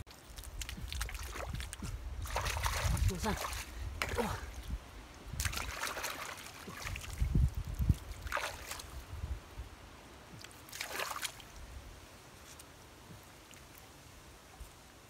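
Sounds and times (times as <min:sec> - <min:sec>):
mud and water squelching: 0:00.0 - 0:09.4, 0:10.1 - 0:14.8
short wet splashes: 0:00.1 - 0:04.7, 0:05.3 - 0:09.0, 0:10.4 - 0:11.6.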